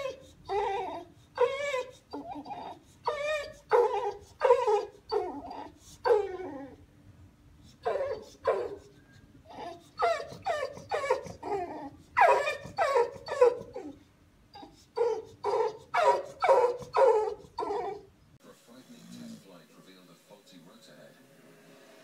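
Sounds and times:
dog whining: 0.0 - 6.9, 7.6 - 18.1.

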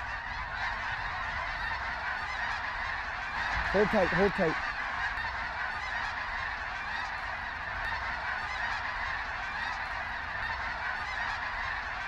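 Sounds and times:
geese honking: 0.0 - 12.0.

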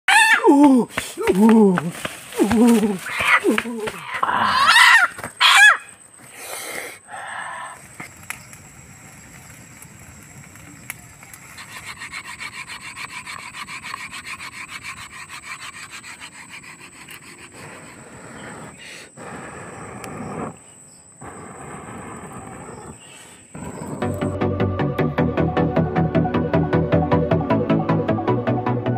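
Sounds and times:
knife scraping against wood: 11.5 - 18.7.

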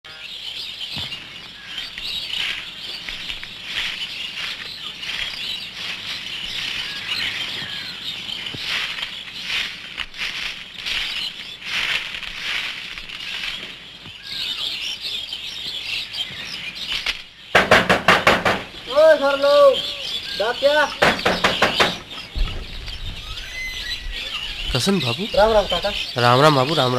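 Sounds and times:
small birds chirping: 0.0 - 26.9
sharp loud taps: 17.5 - 18.7, 20.9 - 22.6.

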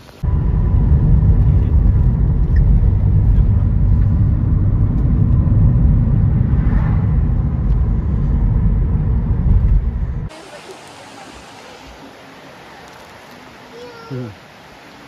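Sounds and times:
wind buffeting microphone: 0.2 - 10.3.

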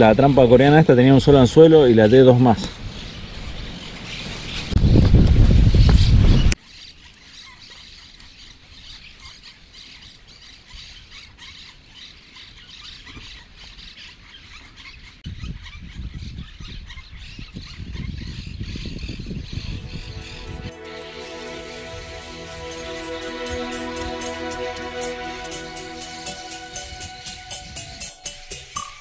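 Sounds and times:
wind rumble on microphone: 2.7 - 6.6, 15.2 - 20.4.

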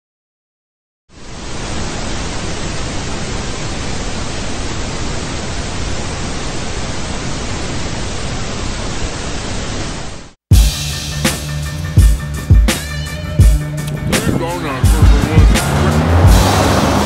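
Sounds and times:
tv static hiss: 1.2 - 10.4
music with heavy kick drum: 10.5 - 17.0.

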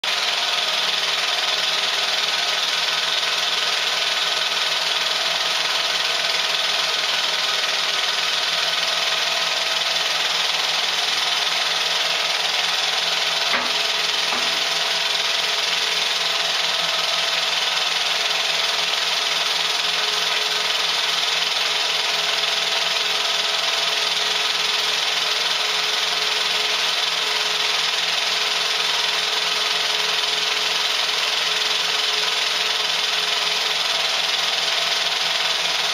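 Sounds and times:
film projector whirring and rattling: 0.0 - 35.9.

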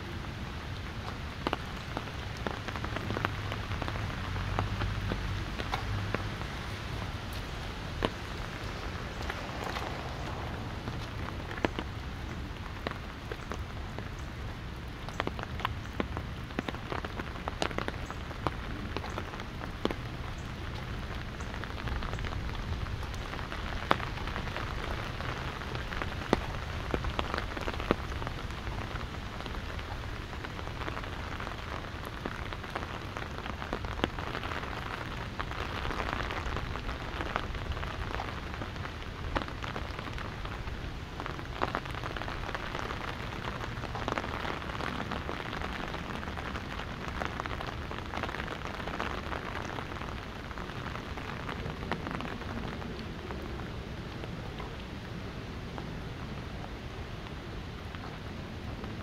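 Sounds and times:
low wind rumble: 0.0 - 59.0
rain tapping on umbrella: 0.0 - 59.0.

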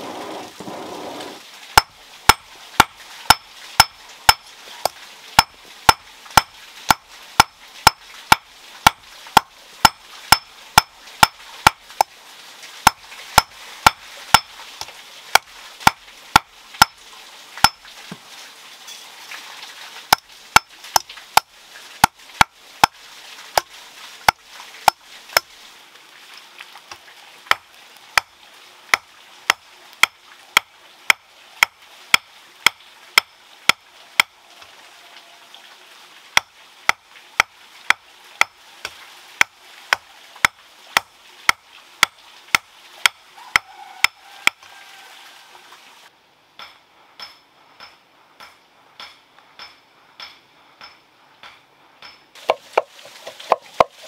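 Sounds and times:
hammer striking metal on anvil: 46.6 - 52.6.

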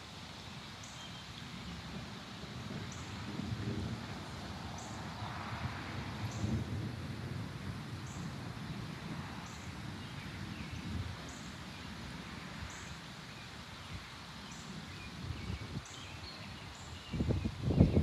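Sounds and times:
wind in trees: 0.0 - 18.0
wind buffeting microphone: 1.4 - 18.0.

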